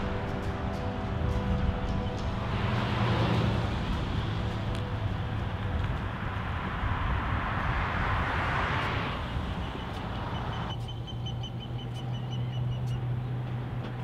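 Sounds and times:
rushing noise: 0.0s - 10.7s
low traffic hum: 0.0s - 14.0s.

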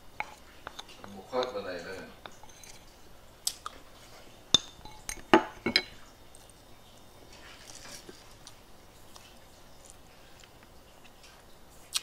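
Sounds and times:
metal spoon clinking ceramic bowl: 2.2s - 2.9s, 4.5s - 6.0s.

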